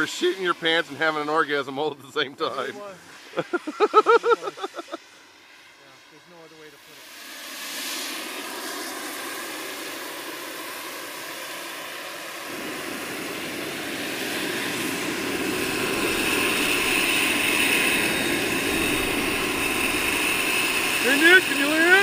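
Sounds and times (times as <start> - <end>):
model helicopter rotor and motor: 0.0 - 22.0
high whine: 12.4 - 22.0.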